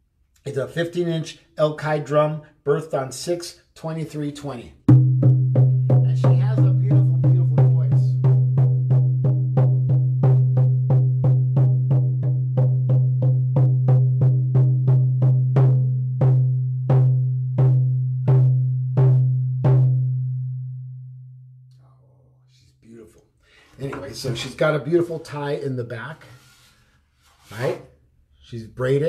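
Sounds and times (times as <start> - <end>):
hand drum beaten: 4.9 - 20.5.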